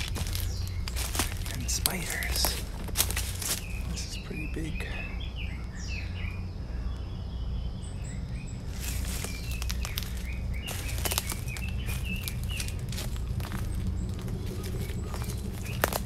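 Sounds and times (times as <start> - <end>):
footsteps in dry leaves: 0.0 - 4.4, 8.6 - 16.0
low microphone rumble: 0.0 - 16.0.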